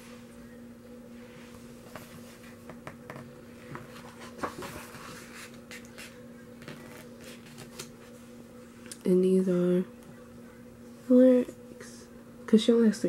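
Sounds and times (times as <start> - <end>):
steady low hum: 0.0 - 13.0
paper pages rustling: 3.6 - 8.2.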